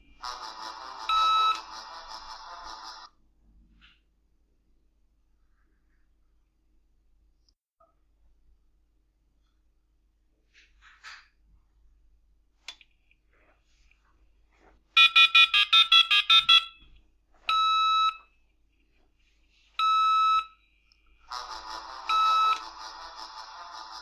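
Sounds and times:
modem touch-tone beeps: 1.0 - 1.8, 15.0 - 16.8, 17.5 - 18.3, 19.8 - 20.6, 22.0 - 22.8.

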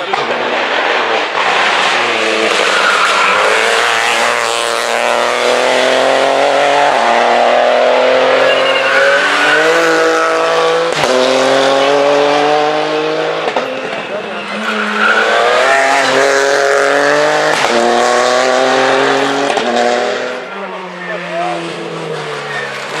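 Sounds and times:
sharp crack: 0.0 - 3.5
rally car engine accelerating: 0.0 - 23.0.

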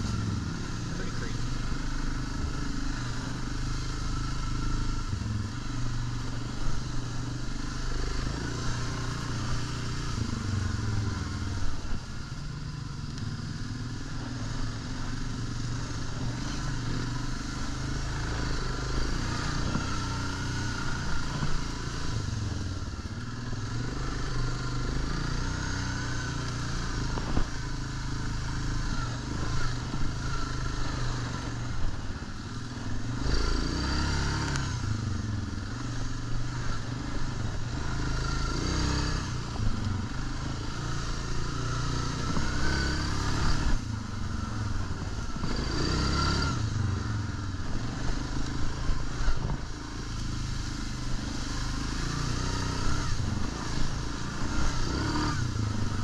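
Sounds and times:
quad bike engine running: 0.0 - 56.0.

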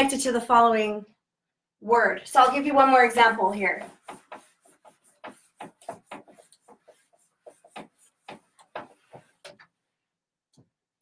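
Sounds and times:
eraser rubbing on whiteboard: 2.4 - 9.8.

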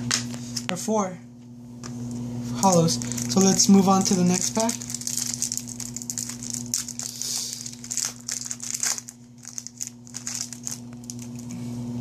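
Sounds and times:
faint steady hum: 0.0 - 12.0
foil wrapper crinkling and tearing: 2.6 - 11.6.

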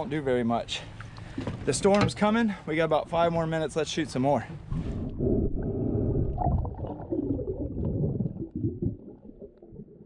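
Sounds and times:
muffled underwater rumbling and gurgling: 4.6 - 10.0.

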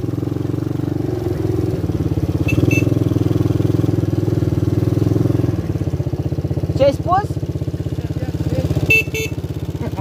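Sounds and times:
atv engine running: 0.0 - 10.0
short high chirps: 2.5 - 3.0.

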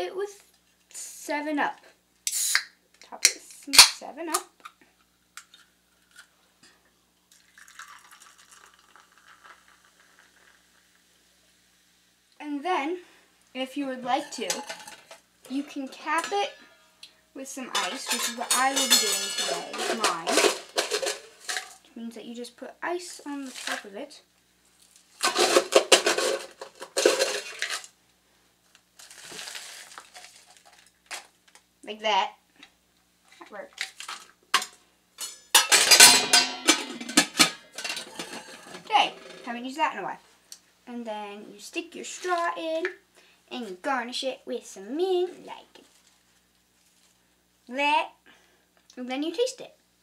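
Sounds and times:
soda pouring splash and fizz: 7.3 - 11.7
cup scooping crushed ice: 25.2 - 27.9, 29.0 - 31.3.

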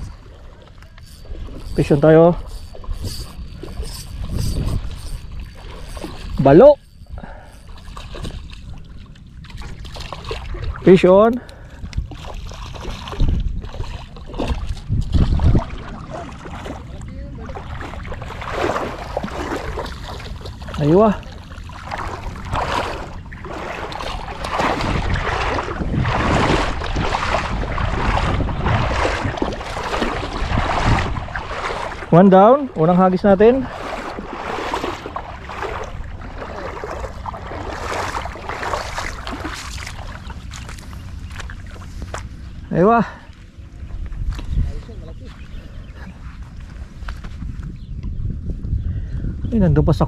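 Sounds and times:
sea water washing: 0.0 - 43.2
wind buffeting microphone: 0.0 - 50.0
seawater and surf hissing: 15.4 - 40.5.

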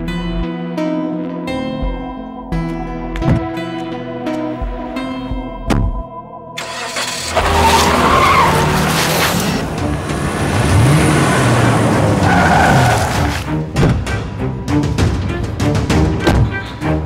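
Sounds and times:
tyres skidding on dirt: 6.6 - 13.6
car engine revving: 6.6 - 14.3.

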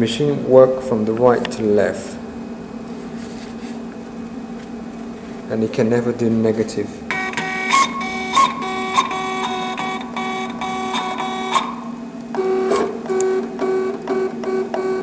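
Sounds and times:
stepper motors whining in pulses: 6.9 - 15.0.

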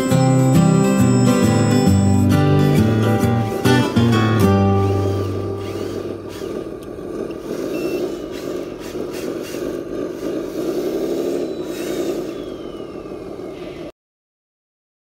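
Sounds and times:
guitar music: 0.0 - 6.8
toy truck motor running: 0.0 - 13.9.

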